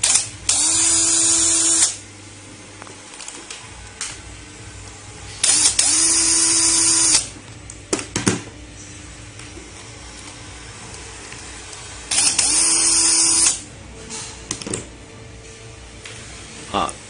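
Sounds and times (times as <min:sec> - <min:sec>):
electric screwdriver spinning: 0:05.4 - 0:07.3, 0:12.1 - 0:13.6.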